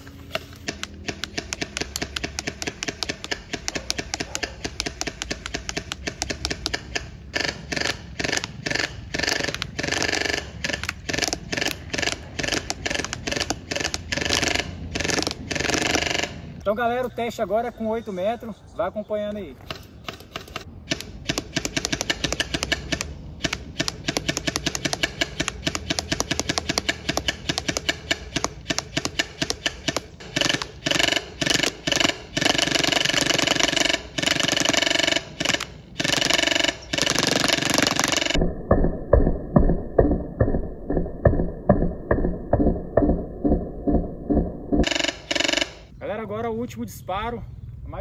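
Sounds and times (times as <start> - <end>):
airsoft rifle firing full auto: 0.6 - 16.4, 20.1 - 38.4, 44.8 - 45.9.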